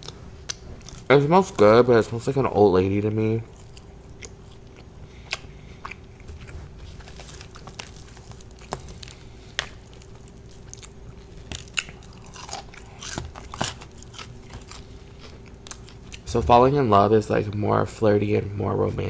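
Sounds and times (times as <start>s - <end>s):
chewing crispy fried chicken: 2.9s - 16.3s.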